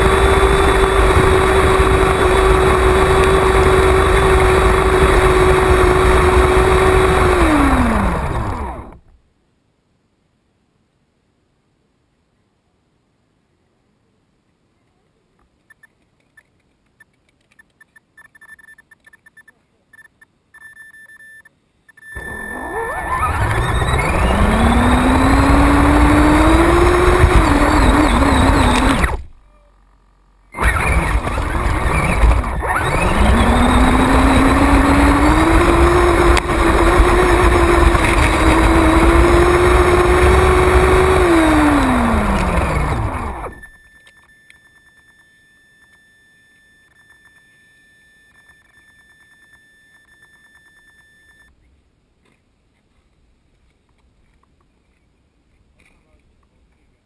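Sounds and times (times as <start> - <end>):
toy truck motor whine: 0.0 - 9.1, 22.0 - 29.4, 30.0 - 47.5
faint steady tones: 12.2 - 54.1.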